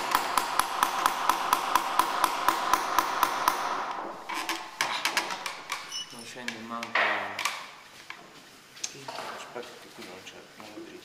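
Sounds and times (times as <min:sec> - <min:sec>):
hammer tapping a nail into wood: 0:00.0 - 0:03.7.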